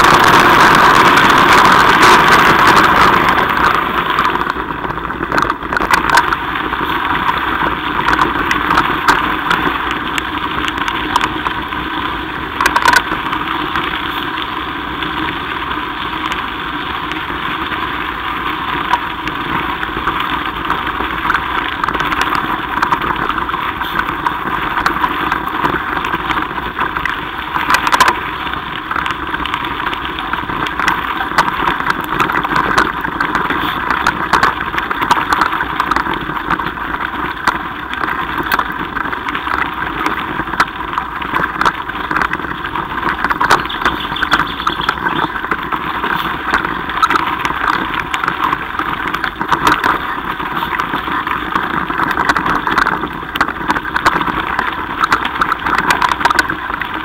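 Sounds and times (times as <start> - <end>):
bike tyres rumbling on gravel: 0.0 - 57.0
wind on microphone: 0.0 - 57.0
small clicks and knocks: 3.6 - 7.4, 12.6 - 14.3, 21.2 - 57.0.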